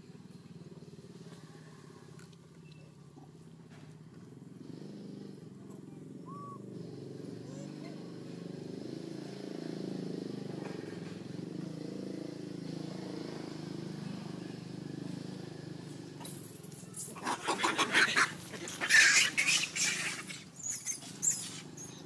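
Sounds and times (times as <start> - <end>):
monkeys screaming: 6.2 - 6.7, 17.0 - 22.0.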